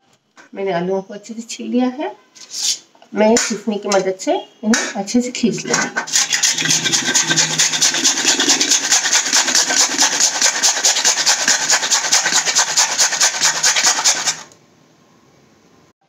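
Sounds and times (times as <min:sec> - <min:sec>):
potato rasping on metal grater: 0:06.0 - 0:14.5.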